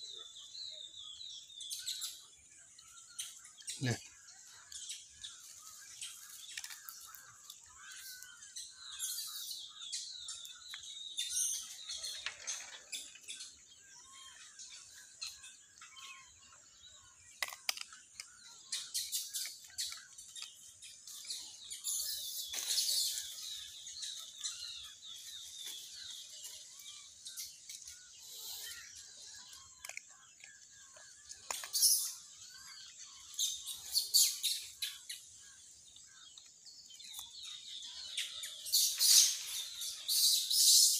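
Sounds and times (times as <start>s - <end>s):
small birds chirping: 0.0s - 40.9s.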